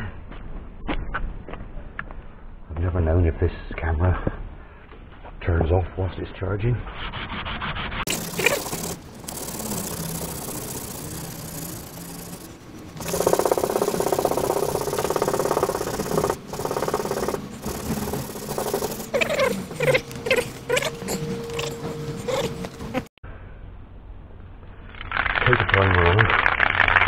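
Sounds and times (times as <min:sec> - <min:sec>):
sandpaper rubbing by hand: 0:06.9 - 0:22.6.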